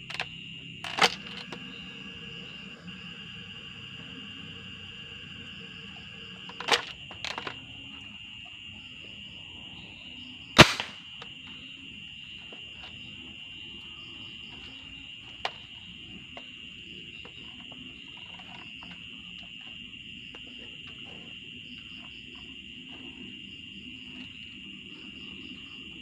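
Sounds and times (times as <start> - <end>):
plastic bolt clicks: 0.8 - 1.6
sharp loud clack: 10.6 - 11.0.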